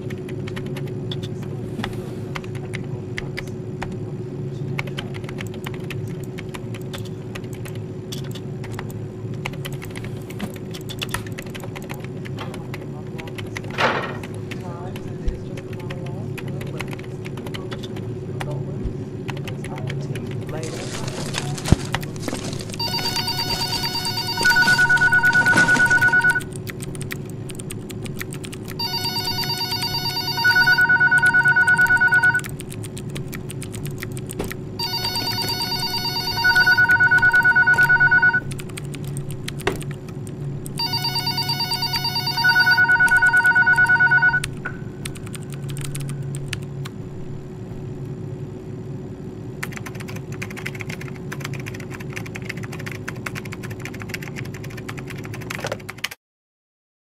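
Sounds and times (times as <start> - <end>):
low office hum: 0.0 - 56.2
telephone ringing: 22.8 - 26.5, 28.8 - 32.5, 34.8 - 38.5, 40.8 - 44.5.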